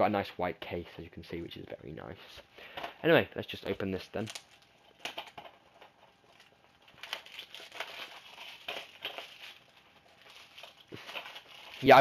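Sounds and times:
packaging rustling and scraping: 3.6 - 12.0.

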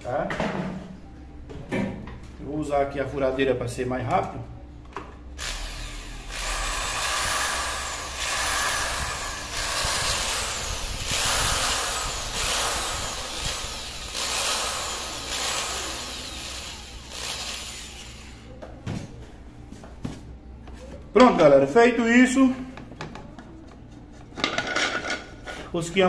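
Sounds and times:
drill scrubbing metal: 5.4 - 18.5.

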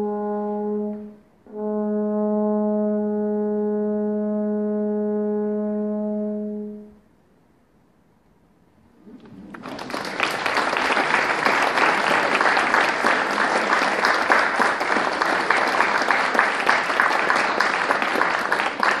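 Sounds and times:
audience applauding: 9.1 - 19.0.

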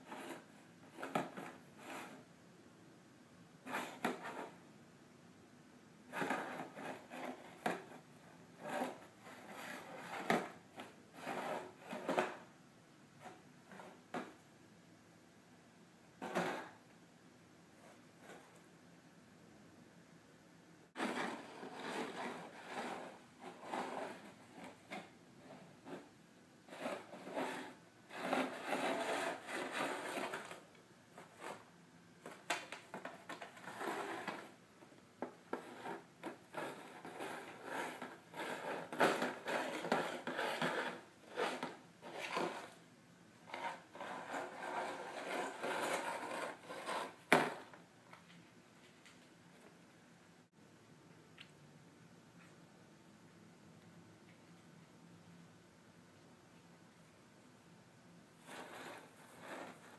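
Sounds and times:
plastic tub scraping on wooden floor: 6.1 - 8.0, 8.6 - 12.5, 16.2 - 16.8, 21.0 - 26.1, 26.7 - 30.6, 32.3 - 34.6, 35.2 - 42.8, 43.5 - 47.8, 58.4 - 59.9.

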